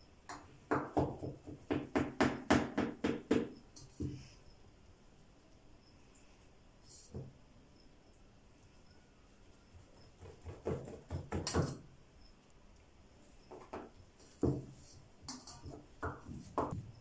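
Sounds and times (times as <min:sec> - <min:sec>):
knife knocking and scraping pan: 0:13.5 - 0:16.8.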